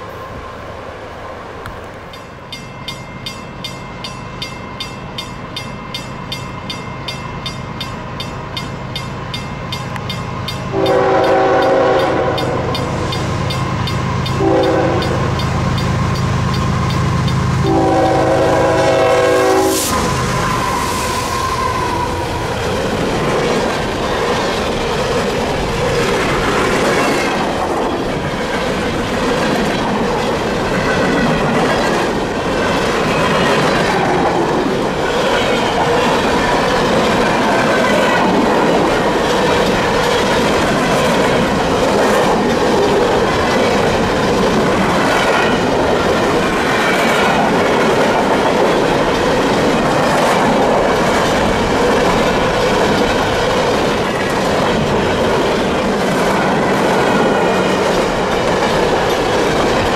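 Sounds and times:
train wheels clacking on rail joints: 1.7s - 59.9s
high wheel squeal: 19.2s - 23.0s.

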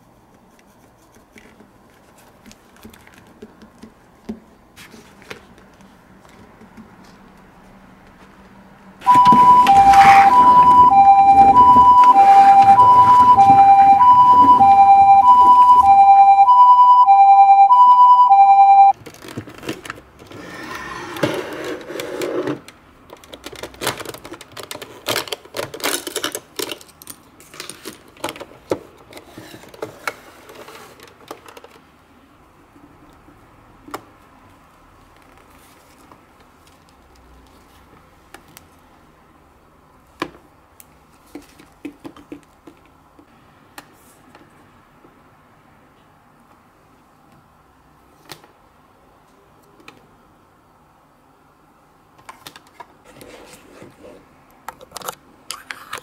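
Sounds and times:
toy siren two-tone: 9.0s - 18.9s
plastic toy clicks and rattles: 23.1s - 31.8s.

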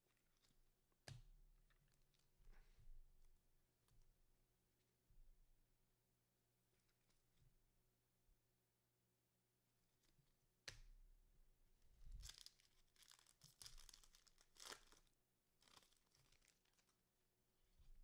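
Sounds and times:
wrapper tearing and crinkling: 12.2s - 17.0s.

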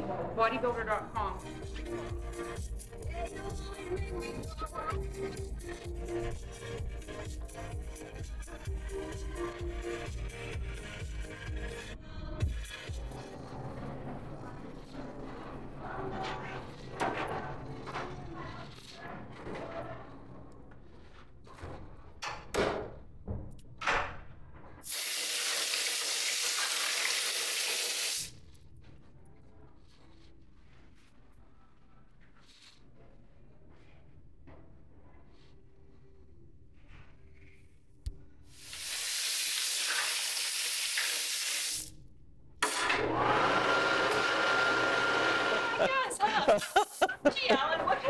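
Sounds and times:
faucet water running over hands: 24.9s - 28.3s, 38.6s - 41.9s
electric hand dryer whine: 42.6s - 47.1s.

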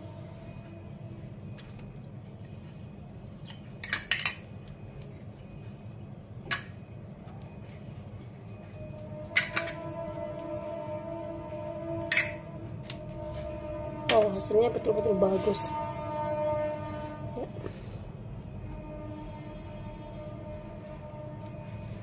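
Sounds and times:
steady low hum: 0.0s - 22.0s
utensils and dishes clinking: 3.4s - 4.7s, 9.3s - 9.9s, 12.1s - 12.5s.

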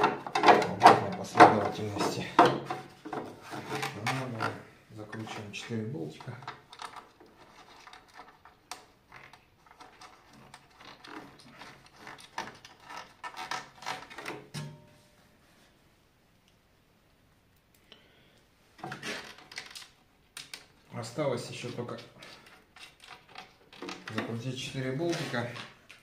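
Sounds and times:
clicks of hand tools and metal parts: 0.0s - 15.0s, 21.5s - 26.0s.

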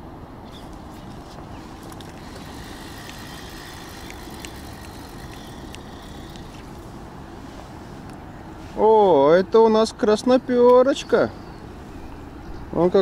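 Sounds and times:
fishing reel whirring and clicking: 1.8s - 6.8s.

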